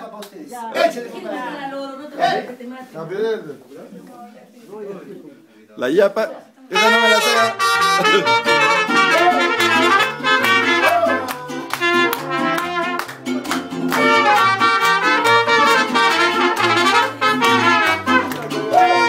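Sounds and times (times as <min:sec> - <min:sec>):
trumpets playing melody: 0:06.7 - 0:13.3, 0:13.9 - 0:19.0
bass line: 0:06.8 - 0:19.0
strummed guitars: 0:06.8 - 0:19.0.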